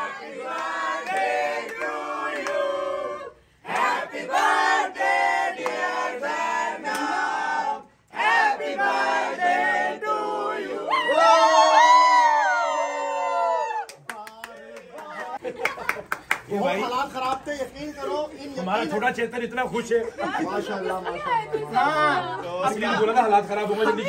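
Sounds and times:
group singing and chanting: 0.0s - 11.3s
high drawn-out cheer: 10.8s - 14.1s.

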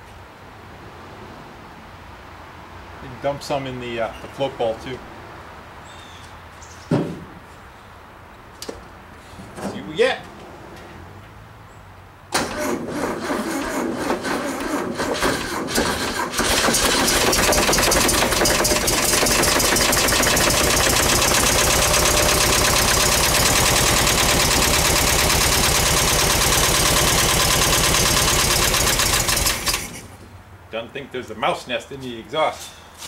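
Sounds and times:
engine cranking and running: 12.3s - 30.2s.

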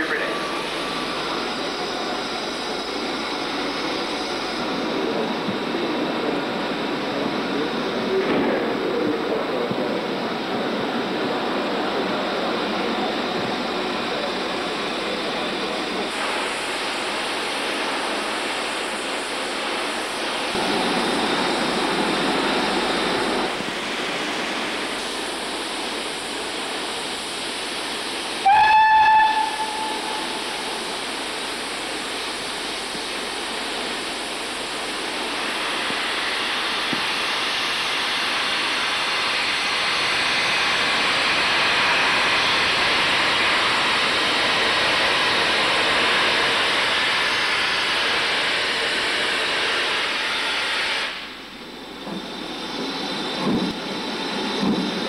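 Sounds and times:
steam locomotive hissing: 0.0s - 55.0s
steam whistle blast: 28.4s - 30.5s.

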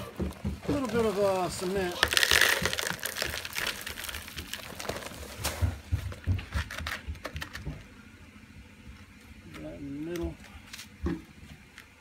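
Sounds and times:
dry concrete mix pouring: 0.0s - 7.6s.

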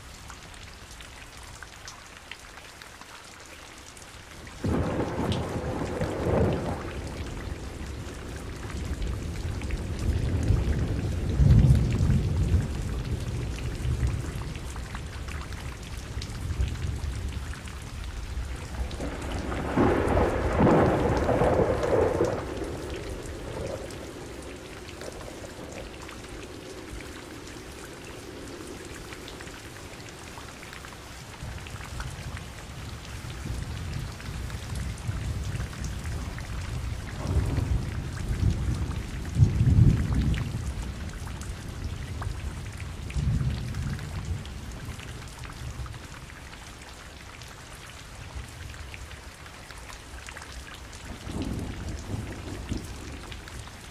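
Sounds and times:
steady rain: 0.0s - 53.9s
rolling thunder: 4.6s - 14.8s, 16.4s - 30.3s, 32.8s - 41.1s, 41.8s - 45.1s, 51.1s - 53.6s.

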